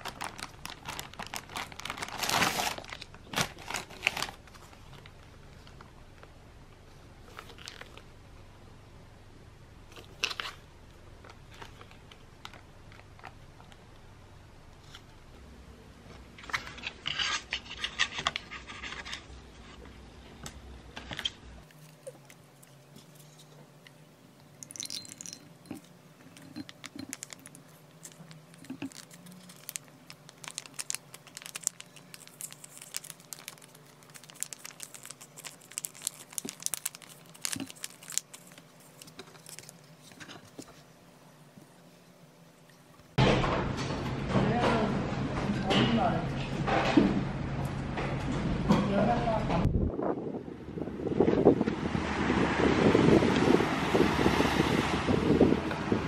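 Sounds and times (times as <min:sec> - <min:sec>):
pouch crackling as squeezed: 0:00.0 - 0:05.1, 0:26.4 - 0:40.2
plastic pouches crinkling: 0:00.0 - 0:05.9, 0:07.3 - 0:08.0, 0:24.6 - 0:40.8.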